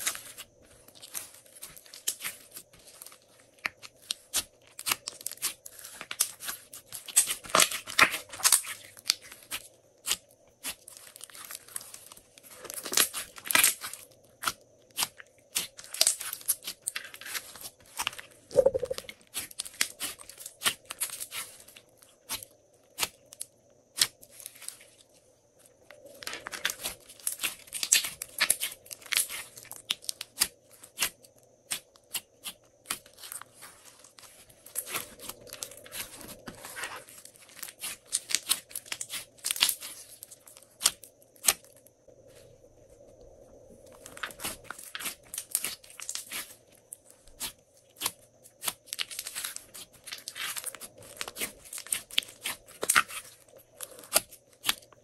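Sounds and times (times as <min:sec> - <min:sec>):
slime crackling and popping: 0:18.6 - 0:21.4, 0:26.2 - 0:31.1, 0:44.1 - 0:46.6, 0:47.4 - 0:54.9.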